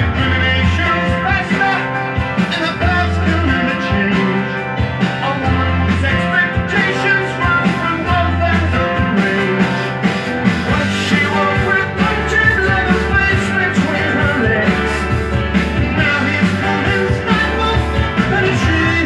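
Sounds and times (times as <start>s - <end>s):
rock music with singing: 0.0s - 19.0s.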